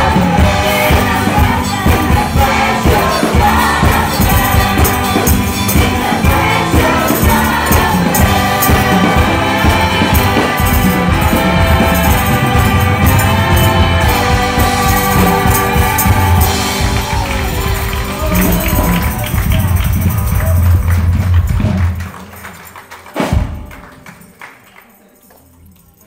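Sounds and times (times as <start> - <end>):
choir singing: 0.0 - 19.4
sharp percussion strokes: 0.0 - 24.4.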